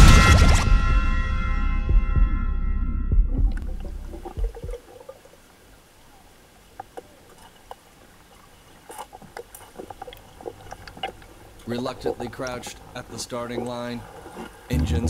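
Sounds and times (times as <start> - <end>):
soft thumps: 3.1 - 4.8.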